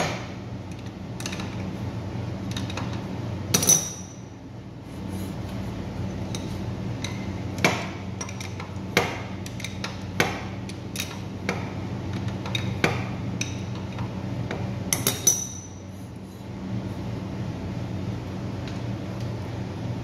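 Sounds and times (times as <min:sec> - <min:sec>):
steady low hum: 0:00.0 - 0:20.0
metal wrench clinking on nut: 0:03.5 - 0:04.2, 0:14.9 - 0:15.8.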